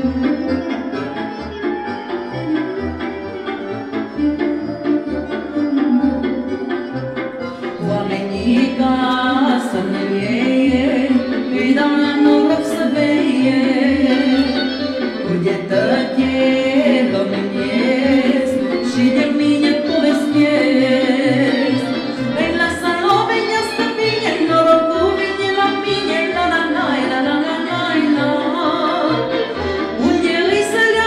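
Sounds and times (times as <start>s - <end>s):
melodic lead line: 0.0s - 12.1s.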